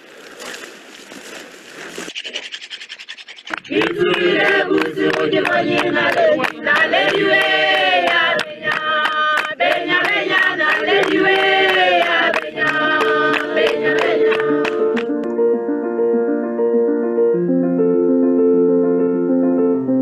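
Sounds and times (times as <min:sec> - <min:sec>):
fast hand claps: 0:03.4 - 0:15.2
group singing chant-like song: 0:03.5 - 0:15.1.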